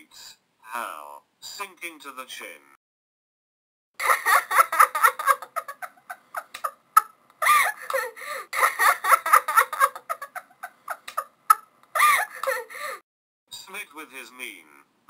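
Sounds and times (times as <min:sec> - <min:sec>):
women giggling and laughing: 0:04.0 - 0:12.8.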